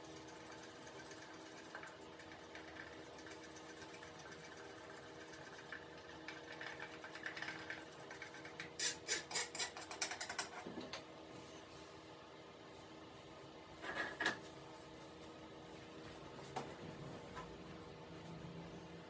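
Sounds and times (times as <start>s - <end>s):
steady low hum: 10.6s - 19.0s.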